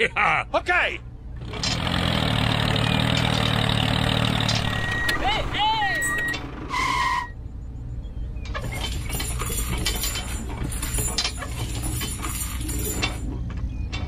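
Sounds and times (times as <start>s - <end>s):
short high beep: 4.6s - 7.3s
small metal chain clinking: 8.6s - 13.3s.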